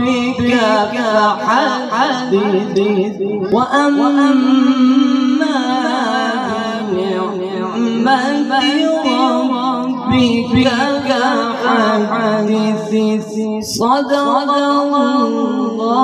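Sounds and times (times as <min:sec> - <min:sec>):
man chanting melodically: 0:00.0 - 0:16.0.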